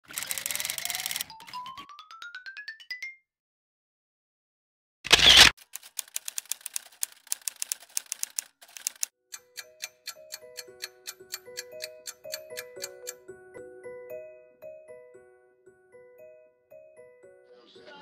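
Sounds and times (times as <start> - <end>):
typewriter keys clacking: 0.1 - 1.7, 5.6 - 9.1
gentle mallet instrument melody: 9.4 - 17.5.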